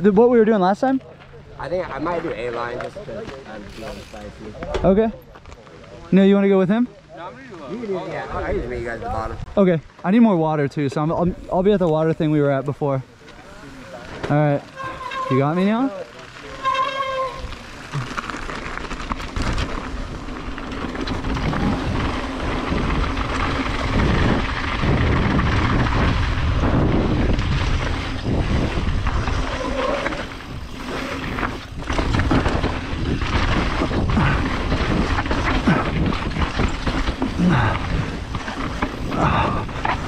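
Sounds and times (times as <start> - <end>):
tyres on loose dirt: 0.0 - 40.0
bike knocking and rattling: 1.0 - 5.9, 10.8 - 40.0
wind rushing over microphone: 19.3 - 40.0.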